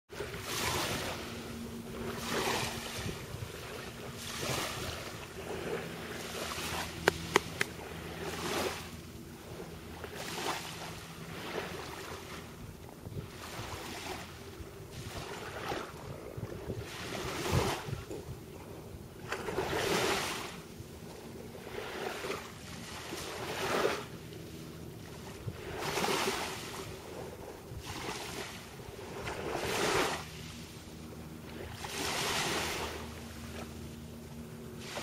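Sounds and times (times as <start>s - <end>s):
small waves washing ashore: 0.1s - 35.0s.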